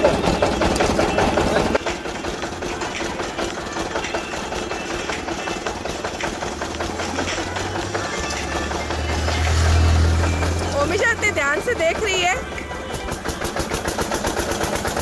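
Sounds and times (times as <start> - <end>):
cane crusher mechanical clatter: 0.0 - 15.0.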